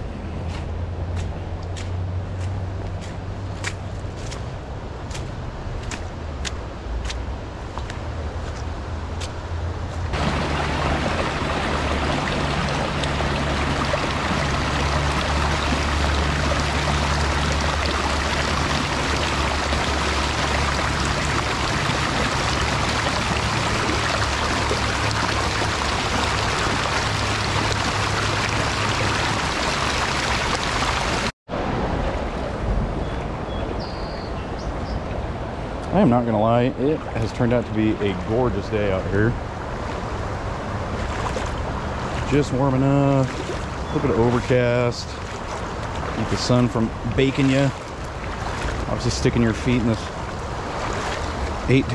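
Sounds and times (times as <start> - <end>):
shallow river rushing over rocks: 10.1 - 32.7, 39.5 - 51.9.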